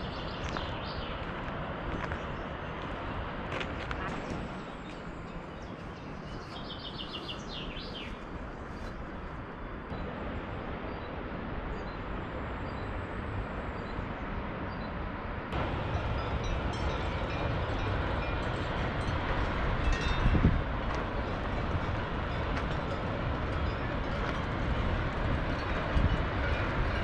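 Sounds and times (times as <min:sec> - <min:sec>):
outdoor rushing noise: 0:00.0 - 0:27.0
small birds chirping: 0:04.6 - 0:08.2.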